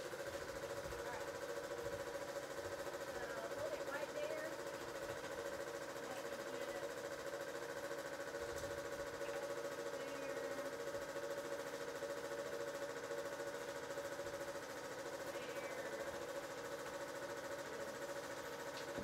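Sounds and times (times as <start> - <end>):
small motor humming: 0.0 - 19.0.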